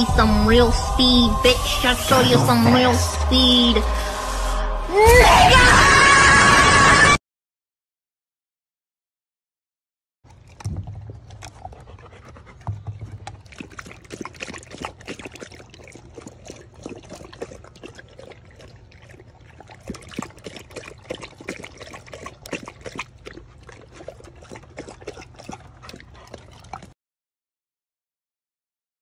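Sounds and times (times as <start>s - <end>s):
dogs lapping water: 10.3s - 27.0s.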